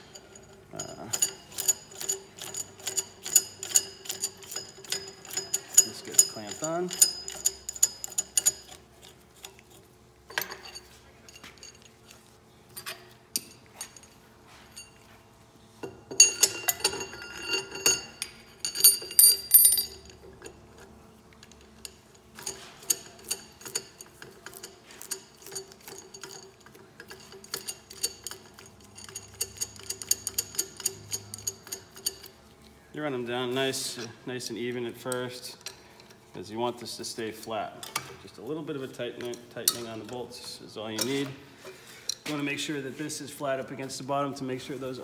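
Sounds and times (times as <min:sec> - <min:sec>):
rapid light ticking and clinking: 0:00.0 - 0:08.8, 0:21.4 - 0:32.4.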